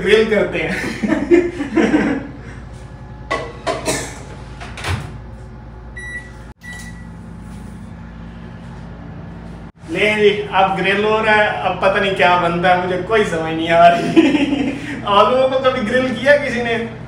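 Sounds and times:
oven running low hum: 0.0 - 17.0
short keypad beeps: 6.0 - 7.1.

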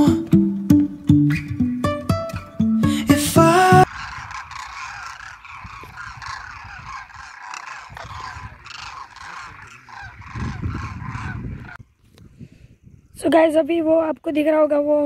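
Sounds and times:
flock of cranes calling: 3.8 - 11.8.

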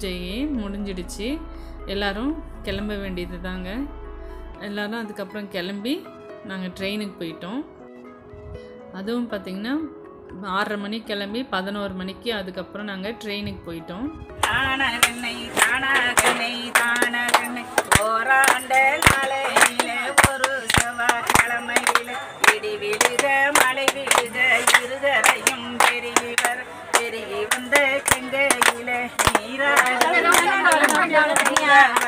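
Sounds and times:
hands clapping: 14.4 - 32.0
women singing together: 14.4 - 32.0.

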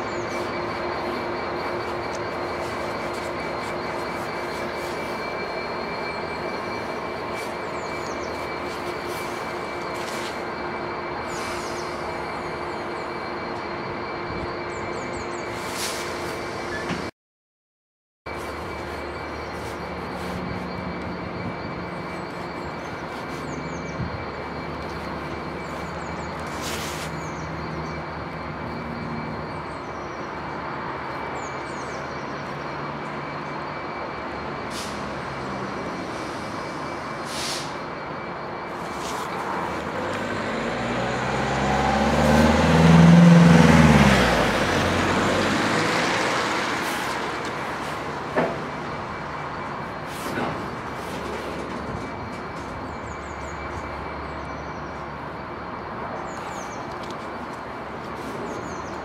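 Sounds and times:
locomotive diesel engines humming: 0.0 - 17.1, 18.3 - 59.0
vehicle passing close: 39.8 - 47.5.

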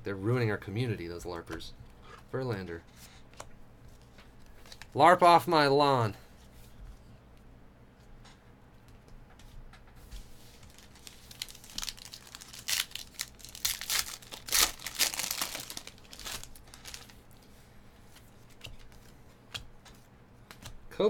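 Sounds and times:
foil wrapper tearing and crinkling: 10.5 - 17.2.

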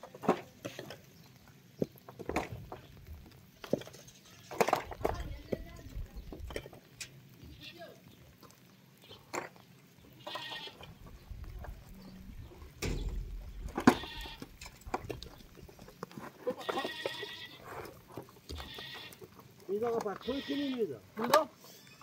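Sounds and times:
animal bleating: 10.1 - 11.1, 13.2 - 14.8, 16.4 - 17.9, 18.5 - 19.4, 20.0 - 21.0.

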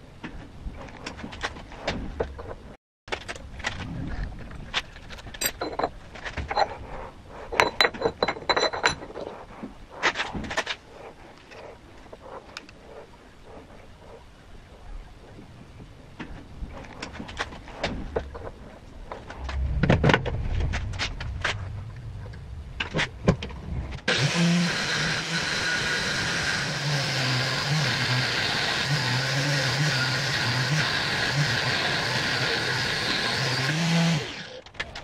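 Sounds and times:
metal tooling clicks and knocks: 5.0 - 6.7, 7.5 - 9.4
drill boring into metal: 24.1 - 34.6.

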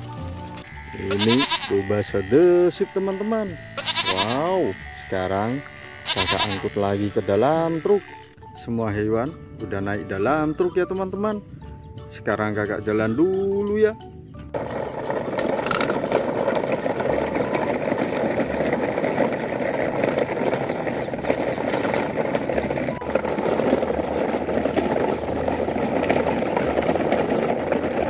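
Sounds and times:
toy wheels rolling over dry leaves: 0.0 - 8.2, 14.6 - 28.0.

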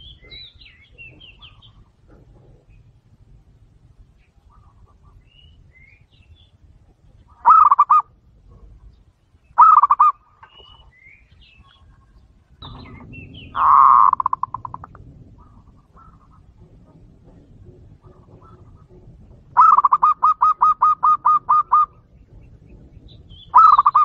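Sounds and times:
small birds chirping: 0.0 - 24.0
dove cooing: 7.2 - 8.9, 9.6 - 10.8, 11.6 - 24.0.

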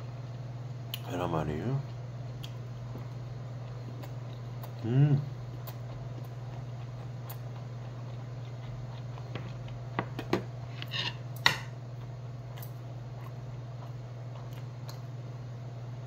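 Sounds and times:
mouth sound of eating: 3.7 - 9.2.

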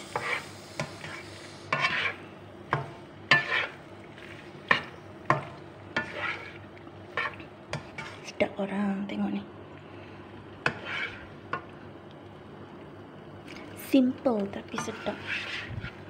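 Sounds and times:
spatula scraping frying pan: 0.0 - 8.4, 10.6 - 11.7, 14.6 - 16.0
faint frying sizzle: 0.0 - 16.0.

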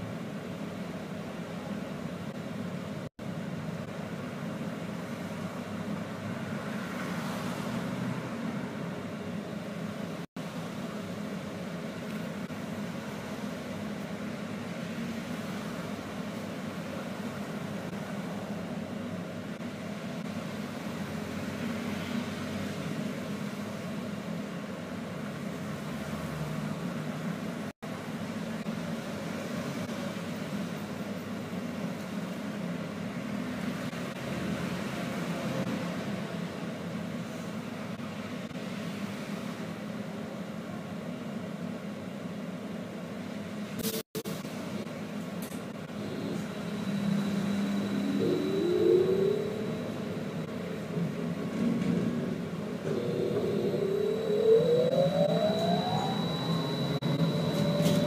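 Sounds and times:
low hum inside trolleybus: 0.0 - 58.0
road traffic: 0.0 - 58.0
cars passing close by: 6.2 - 9.1.

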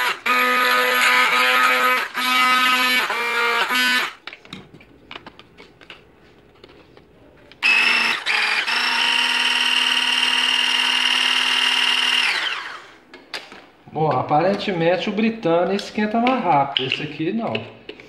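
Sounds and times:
hand blender motor whining: 0.0 - 4.2, 7.6 - 13.0.

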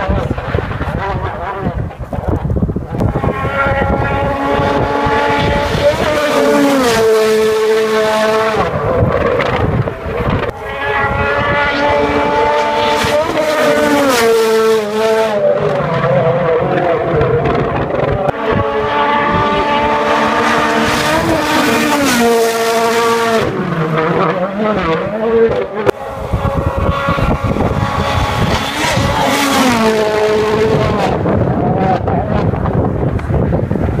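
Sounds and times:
rally car engines revving: 0.0 - 34.0.

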